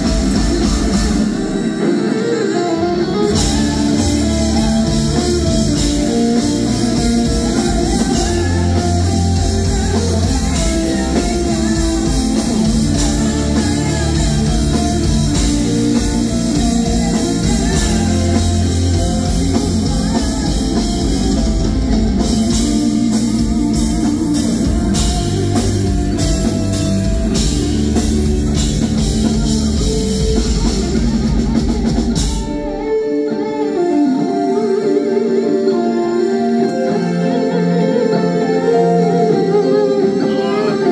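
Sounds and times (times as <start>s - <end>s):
drum kit: 0.0s - 34.7s
bass guitar: 0.0s - 40.9s
distorted electric guitars: 0.0s - 40.9s
woman singing: 3.2s - 23.9s.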